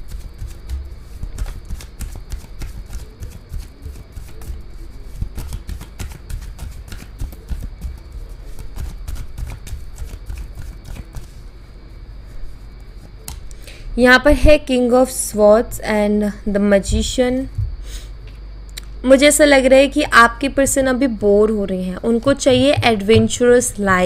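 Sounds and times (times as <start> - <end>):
cards shuffling: 0.1 - 11.4.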